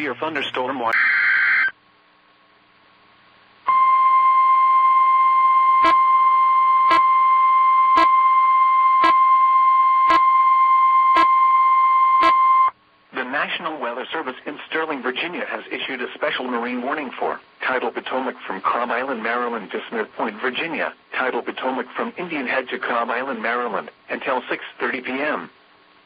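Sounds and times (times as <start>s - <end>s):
steady warning alarm tone: 3.7s - 12.7s.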